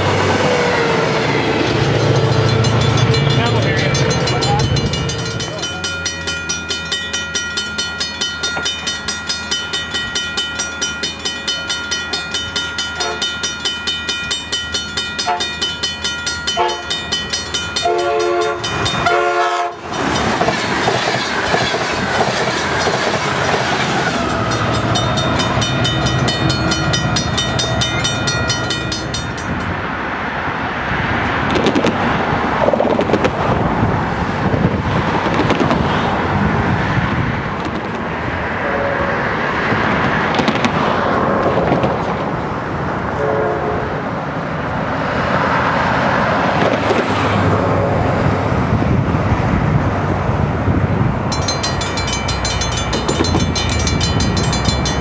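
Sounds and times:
crossing bell ringing: 0.0s - 30.2s, 51.2s - 55.0s
train rumbling over rails: 0.0s - 55.0s
train horn: 13.0s - 13.3s, 15.2s - 15.5s, 16.5s - 17.0s, 17.8s - 19.9s, 38.6s - 39.4s, 43.1s - 44.0s.

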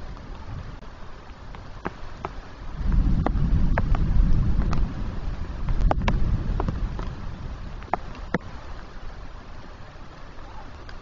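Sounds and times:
raindrops tapping: 0.0s - 11.0s
thunder rumbling: 2.5s - 10.1s.

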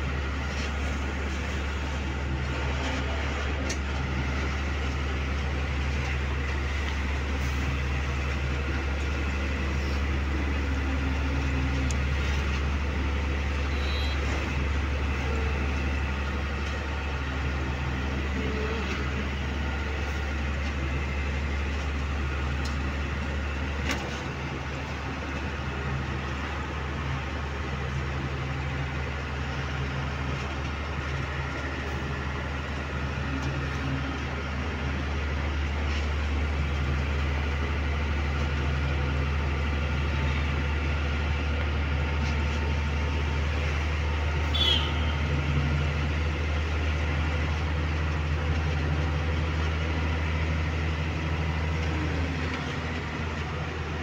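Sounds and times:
truck diesel engine drone: 0.0s - 54.0s.

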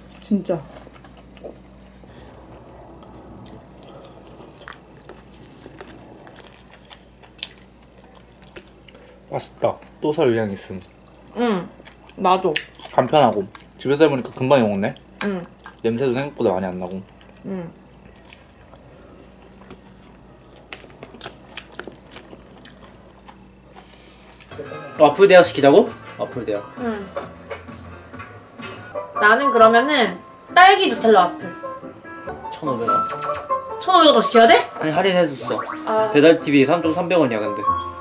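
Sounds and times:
low steady hum: 0.0s - 24.5s
person chewing and biting: 0.8s - 10.0s, 17.1s - 24.5s.

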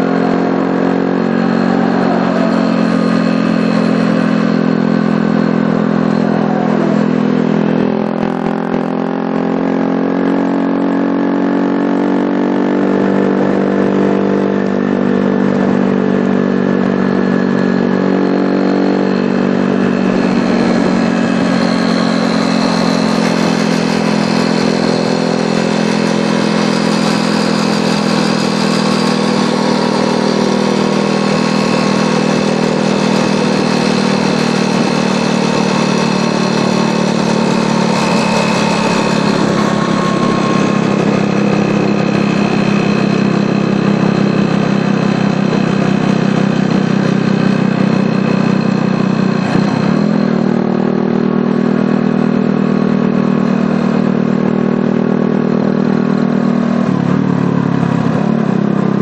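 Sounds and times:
moped engines droning: 0.0s - 59.0s
wind noise: 15.4s - 48.3s.

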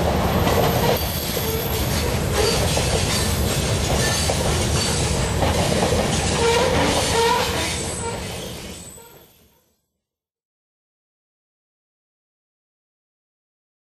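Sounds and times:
train cars rolling over rails: 0.0s - 9.2s
wheel squeals: 0.6s - 5.2s, 6.2s - 9.5s.

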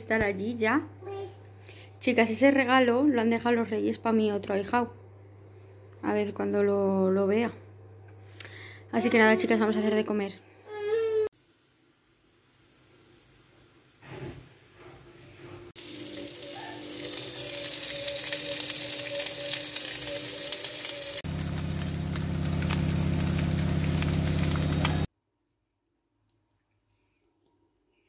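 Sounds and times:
food sizzling in a frying pan: 15.8s - 25.1s
steady hum: 20.0s - 25.1s.

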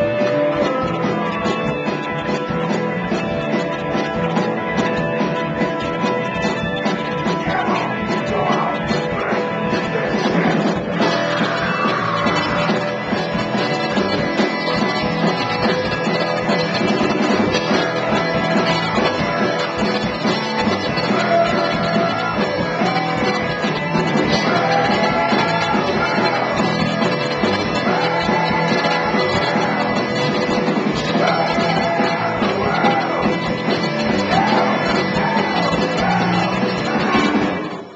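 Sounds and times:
live rock band playing: 0.0s - 37.9s
person singing: 7.1s - 37.4s.

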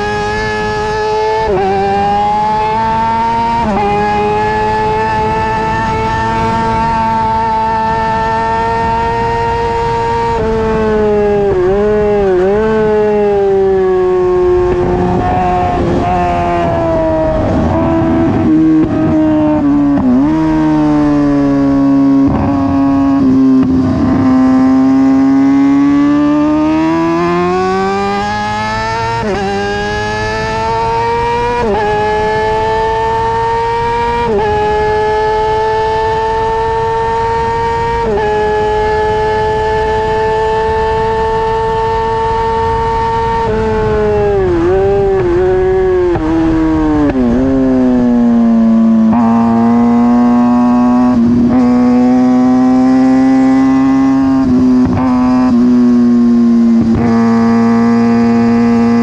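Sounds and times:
motorcycle engine at high revs: 0.0s - 59.0s.

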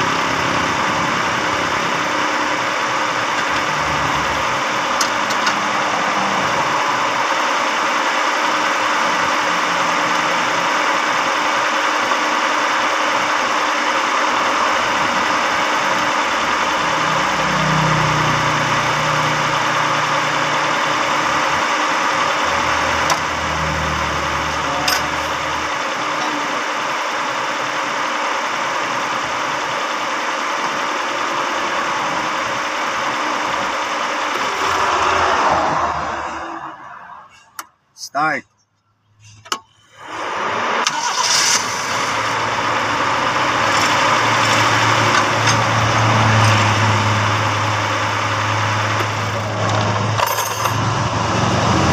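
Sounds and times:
car engine idling: 0.0s - 51.9s.

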